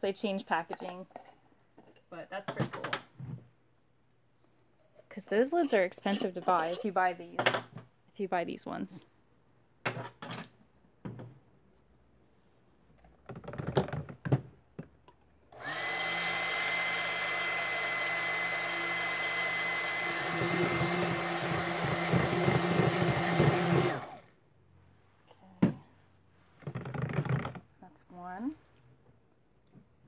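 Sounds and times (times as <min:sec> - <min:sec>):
stick blender motor whirring: 0:15.6 - 0:24.3.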